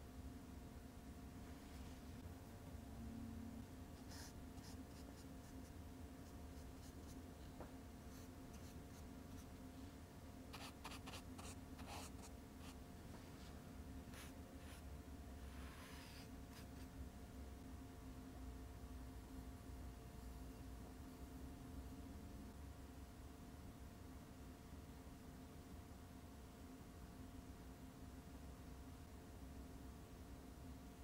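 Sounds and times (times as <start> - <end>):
low steady hum: 0.0 - 31.0
paintbrush scratching on paper: 4.0 - 7.2, 8.0 - 9.6, 10.5 - 16.9.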